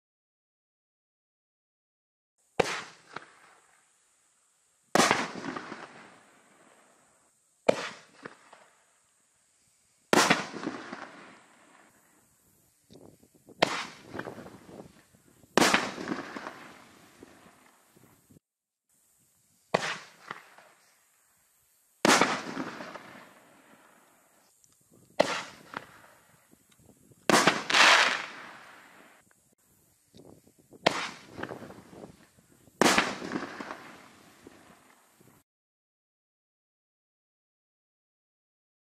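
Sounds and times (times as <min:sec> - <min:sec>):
firework bursts echoing: 0:02.6 - 0:04.1, 0:04.9 - 0:09.1, 0:10.1 - 0:12.6, 0:13.5 - 0:18.4, 0:19.7 - 0:21.1, 0:22.0 - 0:24.5, 0:25.2 - 0:26.5, 0:27.2 - 0:29.2, 0:30.8 - 0:35.4
firework launch thump: 0:07.7 - 0:08.6, 0:25.2 - 0:26.0.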